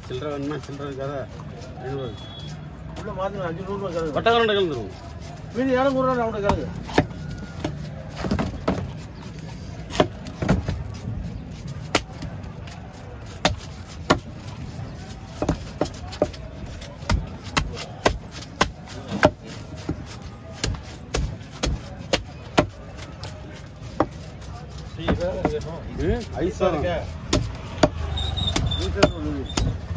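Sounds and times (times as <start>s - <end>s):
knife striking fish on wood block: 20.6s - 22.7s.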